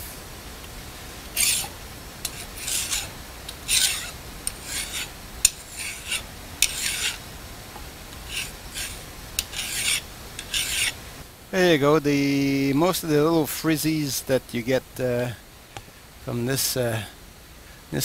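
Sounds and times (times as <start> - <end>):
hand file scraping steel: 1.3 - 7.2, 8.1 - 11.0.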